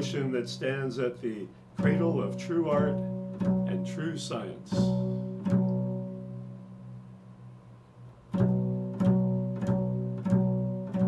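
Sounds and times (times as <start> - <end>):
double bass plucked pizzicato: 1.8 - 7.2, 8.2 - 11.0.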